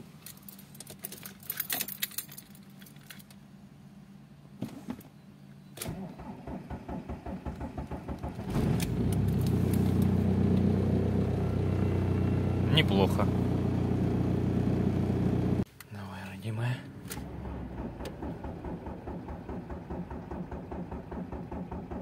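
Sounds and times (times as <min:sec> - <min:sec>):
keys jangling: 0:00.2 - 0:03.4
diesel engine cranking: 0:05.8 - 0:15.6, 0:16.8 - 0:22.0
diesel engine idling: 0:06.6 - 0:15.6, 0:16.6 - 0:22.0.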